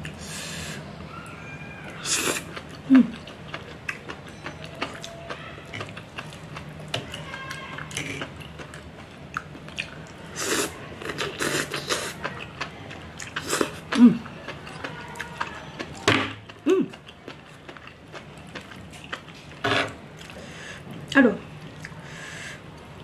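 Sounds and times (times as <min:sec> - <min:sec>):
close-up chewing: 0:01.8 - 0:19.6, 0:20.2 - 0:22.1.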